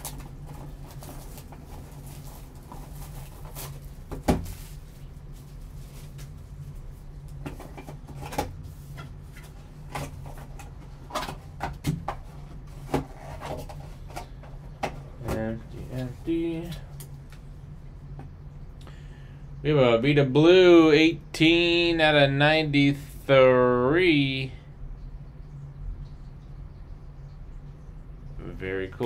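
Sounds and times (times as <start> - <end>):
low hum: 0.0 - 29.0
cardboard box set down knock: 4.1 - 4.6.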